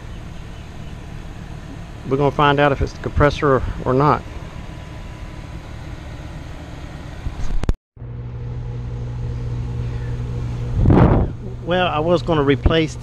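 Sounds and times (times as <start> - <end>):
air conditioner electrical hum: 0.0 - 13.0
outdoor noise: 0.0 - 13.0.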